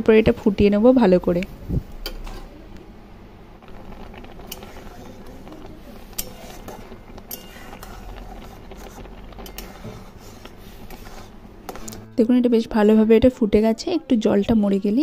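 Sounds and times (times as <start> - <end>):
mixture bubbling and popping: 3.6 - 12.0.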